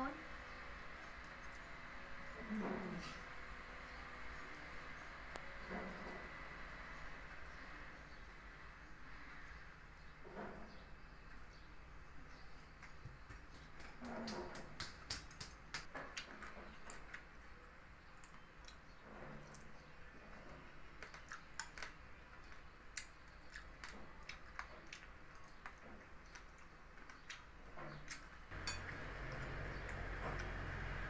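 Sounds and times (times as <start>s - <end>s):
chewing crunchy food: 18.1s - 31.0s.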